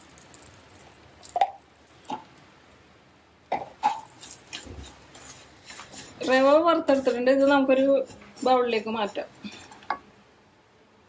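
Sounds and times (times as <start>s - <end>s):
utensils knocking and scraping a pan: 3.5s - 10.0s.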